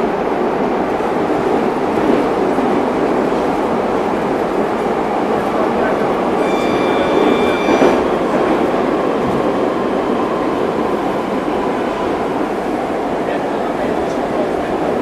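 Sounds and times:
metro train wheels rumbling: 0:00.0 - 0:15.0.

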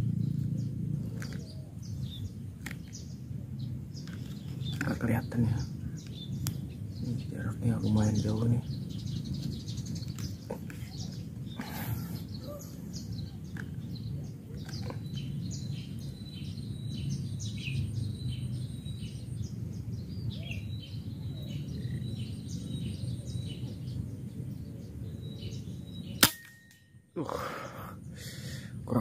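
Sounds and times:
birds chirping: 0:00.0 - 0:29.0
air rifle shot: 0:26.2 - 0:26.7.

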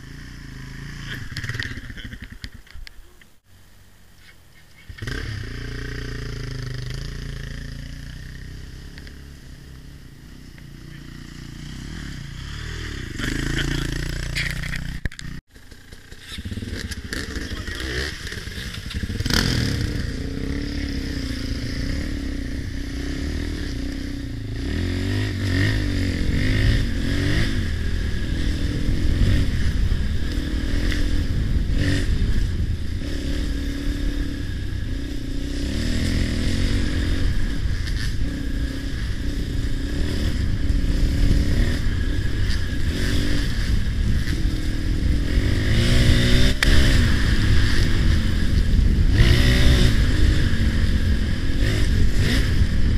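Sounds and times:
dirt bike revving on trail: 0:00.0 - 0:02.6, 0:04.9 - 0:52.9
dirt bike approaching: 0:00.0 - 0:03.2, 0:04.2 - 0:52.9
dirt bike engine idling: 0:00.0 - 0:03.9, 0:04.7 - 0:33.0.

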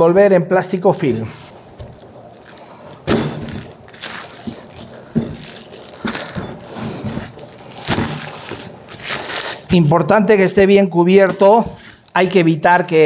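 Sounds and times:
cling film crinkling: 0:01.5 - 0:09.9, 0:11.8 - 0:13.0.

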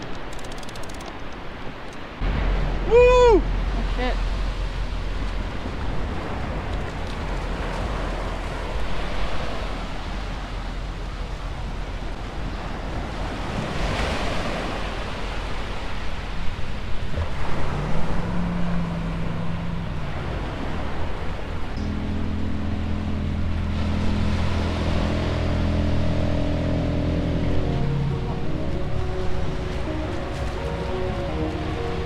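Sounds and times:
wind rumbling on microphone: 0:00.0 - 0:32.0
surf breaking on beach: 0:02.2 - 0:21.8.

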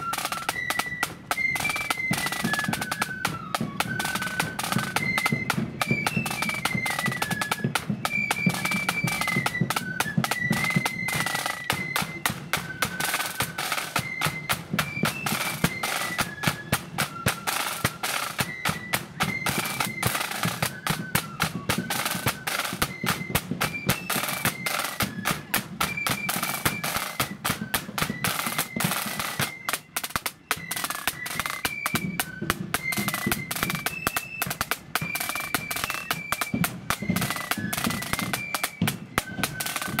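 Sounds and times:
flutes playing melody: 0:00.0 - 0:40.0
snare drumming: 0:00.0 - 0:40.0.

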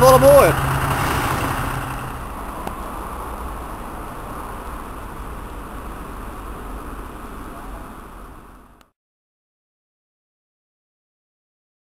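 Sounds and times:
diesel engine idling: 0:00.0 - 0:08.8.

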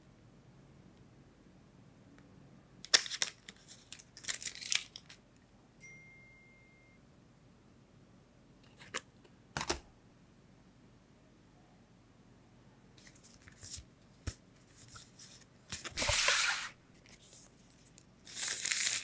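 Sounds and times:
cardboard and plastic crinkling: 0:03.0 - 0:05.2, 0:14.8 - 0:19.0
cardboard crackling: 0:14.9 - 0:19.0.

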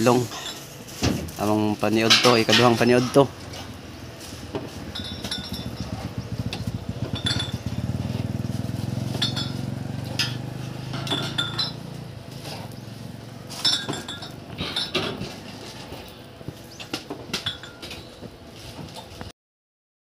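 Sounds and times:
metal tongs clinking on griddle: 0:01.8 - 0:03.3, 0:04.8 - 0:06.0, 0:07.1 - 0:07.9, 0:09.0 - 0:12.1, 0:13.4 - 0:15.8
low engine drone: 0:03.3 - 0:16.8.

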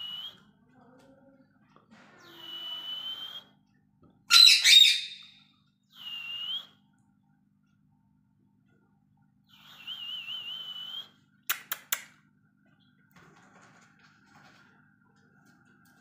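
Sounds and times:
parakeet harsh squawk: 0:04.3 - 0:05.4
parakeet whistling: 0:04.3 - 0:05.4.

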